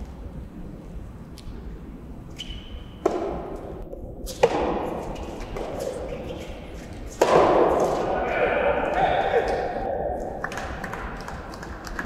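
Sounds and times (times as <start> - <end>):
racket striking rubber ball: 3.0 - 3.6, 4.3 - 5.8, 7.1 - 8.2.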